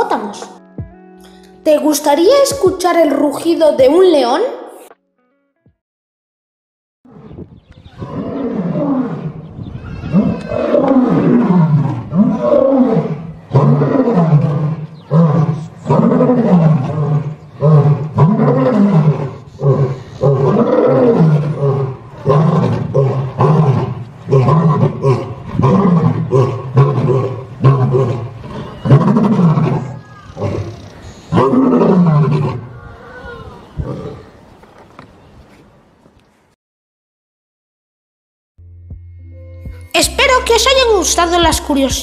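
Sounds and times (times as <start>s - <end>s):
lion roaring: 7.1s - 34.4s.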